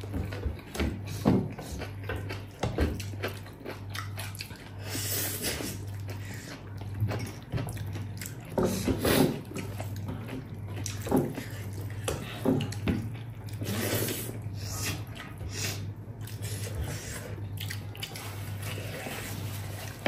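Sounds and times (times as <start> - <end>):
wet chewing and slurping: 0.0 - 20.0.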